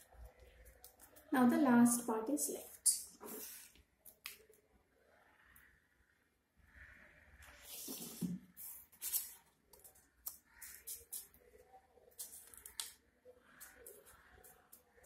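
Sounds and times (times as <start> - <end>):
paper rustling and crinkling: 7.6 - 11.3.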